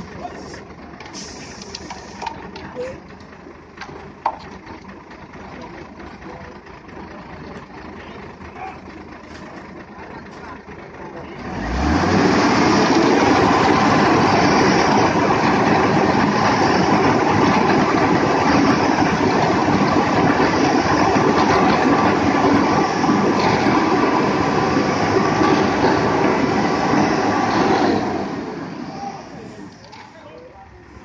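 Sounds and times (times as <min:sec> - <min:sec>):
diesel truck engine revving: 0:06.7 - 0:29.9.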